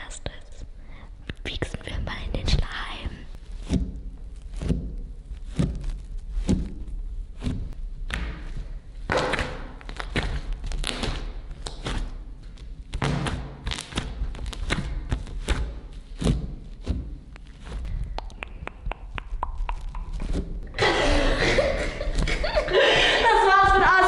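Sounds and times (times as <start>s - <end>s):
wet slime squelches: 1.7s - 20.6s.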